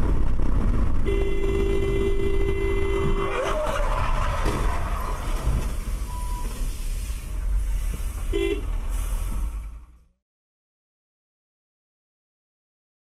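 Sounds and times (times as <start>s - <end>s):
road and engine rumble: 0.0s - 10.2s
car horn toot: 1.0s - 3.7s, 8.3s - 8.7s.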